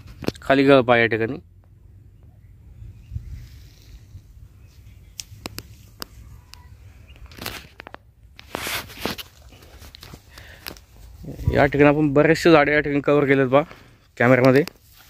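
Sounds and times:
dry leaves and twigs crackling: 0:03.3 - 0:15.0.

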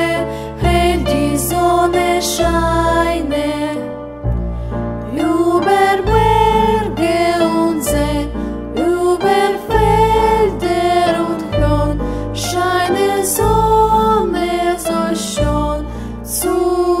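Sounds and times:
girls singing in unison: 0:00.0 - 0:03.9, 0:05.1 - 0:17.0
instrumental backing track: 0:00.0 - 0:17.0.

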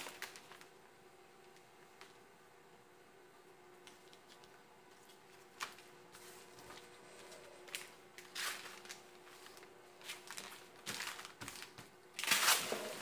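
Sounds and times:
fabric and plastic film crinkling: 0:00.0 - 0:00.8, 0:03.8 - 0:13.0.

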